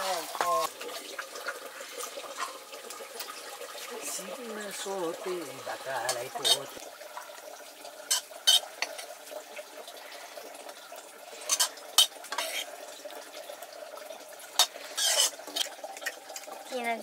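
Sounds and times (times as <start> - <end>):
metal utensils clinking on dishes: 5.9 - 6.8, 8.1 - 9.2, 11.4 - 12.7, 14.6 - 16.5.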